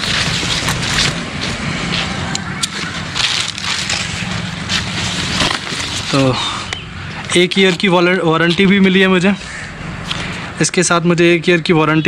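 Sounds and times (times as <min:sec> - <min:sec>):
rucksack straps and buckles handled: 0:00.0 - 0:02.0, 0:02.6 - 0:09.0.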